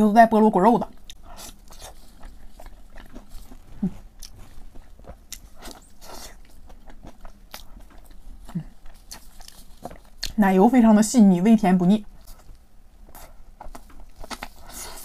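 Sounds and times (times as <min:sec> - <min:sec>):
wet chewing mouth clicks: 0:01.0 - 0:10.4.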